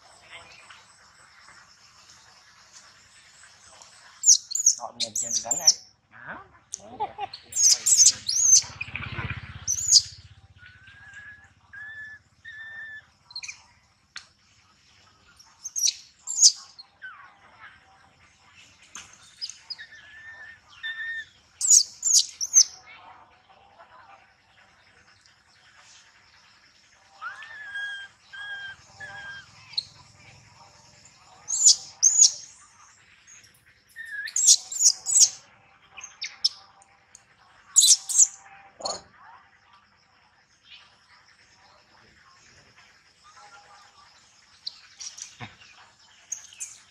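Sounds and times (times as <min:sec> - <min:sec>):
high-pitched chirping calls: 0:03.2 - 0:05.9, 0:06.7 - 0:13.8, 0:15.3 - 0:17.6, 0:18.6 - 0:22.8, 0:27.1 - 0:35.4, 0:36.0 - 0:36.6, 0:37.7 - 0:39.0, 0:43.2 - 0:46.9
low rumble: 0:07.5 - 0:13.4.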